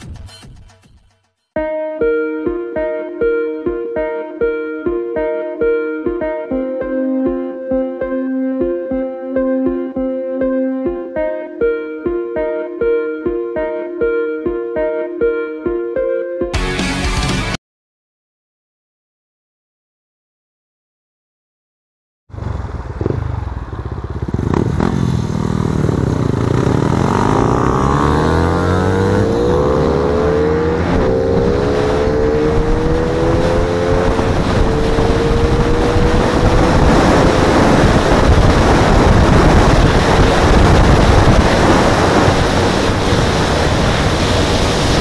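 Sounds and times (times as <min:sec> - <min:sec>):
racing motorcycle engine accelerating: 0:22.3 - 0:45.0
wind rushing over microphone: 0:22.3 - 0:45.0.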